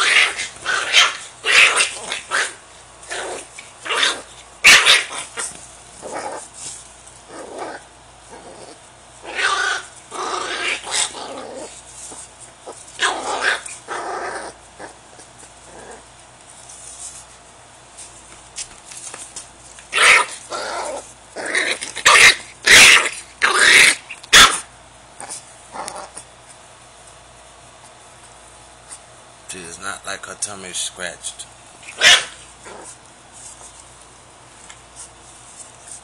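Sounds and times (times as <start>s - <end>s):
puppy growling and yapping: 0.0s - 16.2s, 19.9s - 26.4s, 31.8s - 33.6s.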